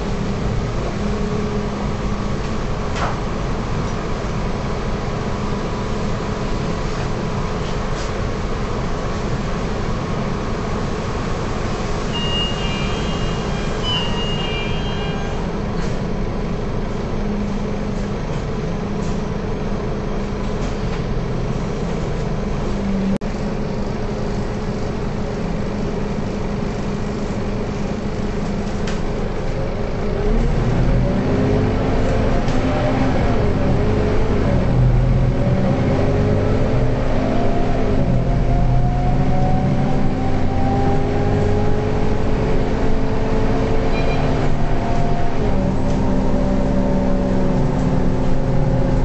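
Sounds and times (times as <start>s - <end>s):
bus diesel engine idling: 0.0s - 49.0s
short electronic beeps: 12.2s - 14.8s
bus engine revving: 26.4s - 49.0s.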